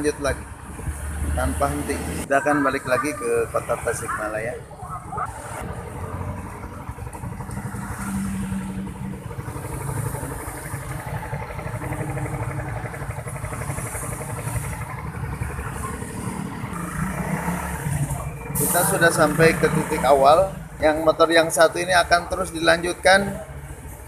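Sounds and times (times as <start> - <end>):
motorcycle engine running: 0.0 - 24.0
wind and road noise: 0.0 - 24.0.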